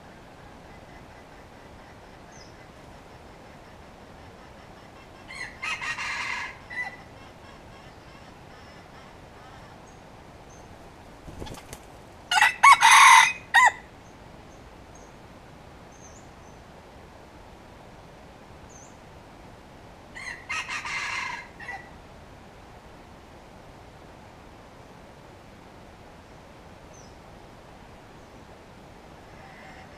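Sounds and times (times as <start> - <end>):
rooster crowing: 5.3 - 7.0, 12.3 - 13.9, 20.2 - 21.9
wings flapping: 11.1 - 12.1.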